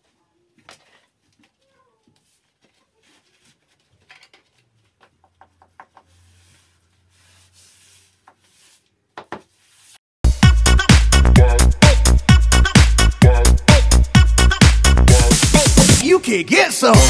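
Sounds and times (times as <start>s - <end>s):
hand tool scraping plaster wall: 5.6s - 10.0s.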